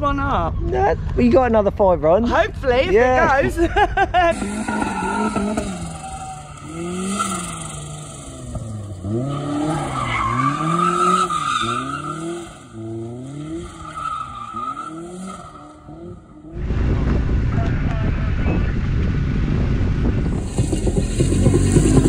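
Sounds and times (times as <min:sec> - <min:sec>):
tyres squealing and skidding: 0:04.3 - 0:16.5
car engine revving: 0:04.3 - 0:22.0.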